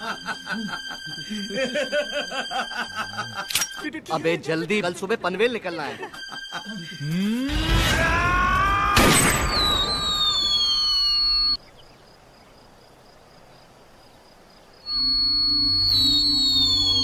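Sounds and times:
descending whistles: 0:07.0 - 0:11.6, 0:14.8 - 0:17.0
loud bang: 0:08.8 - 0:10.5
rising whistling tones: 0:09.3 - 0:11.6, 0:14.9 - 0:17.0.

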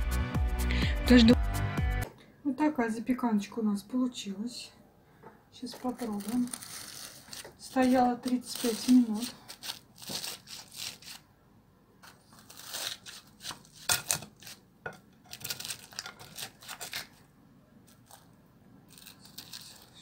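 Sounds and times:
spatula scraping crunchy crust: 0:05.7 - 0:11.2, 0:12.0 - 0:17.2, 0:18.9 - 0:20.0.

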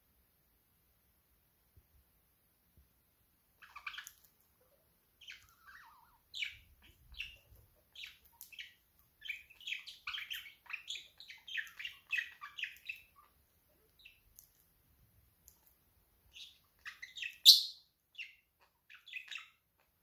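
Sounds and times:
budgerigar chattering and chirping: 0:03.6 - 0:04.2, 0:05.2 - 0:14.2, 0:16.3 - 0:19.6.

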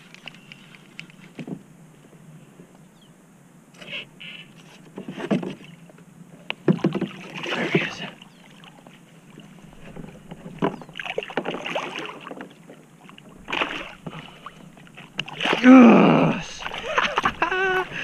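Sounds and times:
water splashing: 0:06.6 - 0:18.0
fish slapping water: 0:08.6 - 0:18.0.

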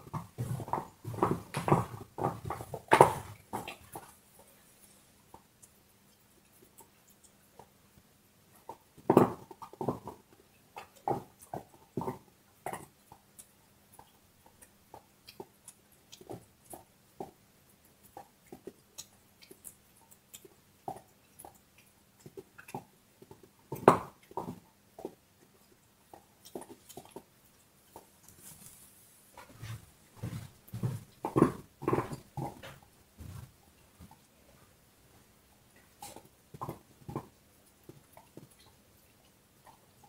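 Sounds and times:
dog gnawing on bone: 0:00.0 - 0:04.6, 0:08.5 - 0:28.8, 0:30.2 - 0:34.4, 0:35.6 - 0:40.0.

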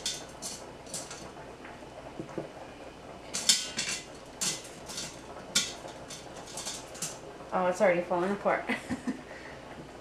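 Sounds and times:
tongs clinking on metal pot: 0:00.0 - 0:01.3, 0:03.3 - 0:07.2.

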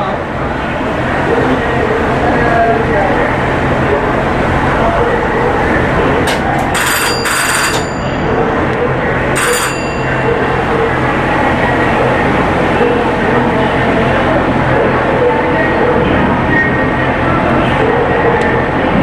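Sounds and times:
propeller wash churning: 0:00.0 - 0:06.8
low rumble of ship machinery: 0:00.0 - 0:19.0
bell ringing: 0:06.7 - 0:11.0.

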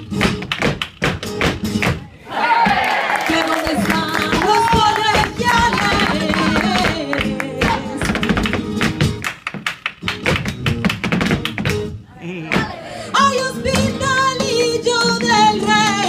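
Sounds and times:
rhythmic hand-clapping: 0:00.0 - 0:02.0, 0:02.6 - 0:12.8
flamenco guitar: 0:00.0 - 0:02.1, 0:02.7 - 0:16.0
footwork stamping on wooden stage: 0:00.0 - 0:16.0.

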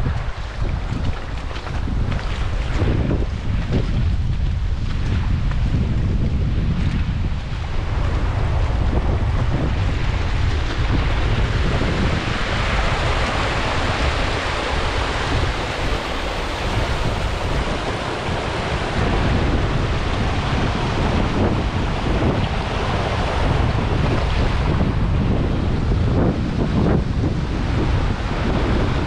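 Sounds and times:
wind buffeting microphone: 0:00.0 - 0:29.0
river water rushing over weir: 0:07.7 - 0:26.3.

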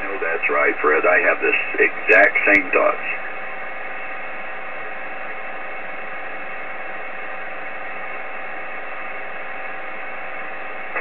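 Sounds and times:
radio static hiss: 0:00.0 - 0:11.0.

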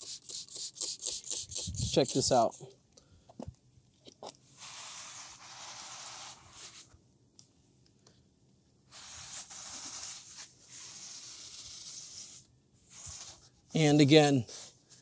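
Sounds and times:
towel rubbing on car wrap: 0:04.6 - 0:06.9, 0:08.9 - 0:13.4.

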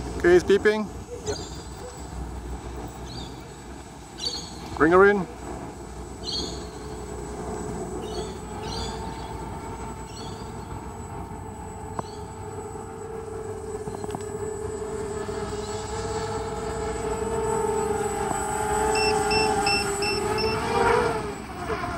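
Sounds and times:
drone propellers whining: 0:00.0 - 0:21.9
bird chirps: 0:01.1 - 0:02.0, 0:04.2 - 0:04.8, 0:06.2 - 0:07.0, 0:08.0 - 0:10.9, 0:11.9 - 0:12.4
short high beeps: 0:18.9 - 0:20.7.

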